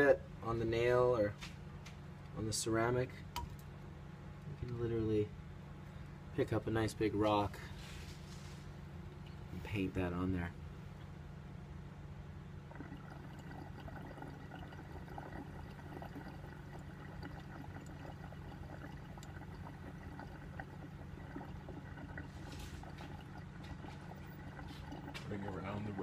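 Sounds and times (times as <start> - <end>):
water bubbling in glass pipe: 12.6 - 26.0.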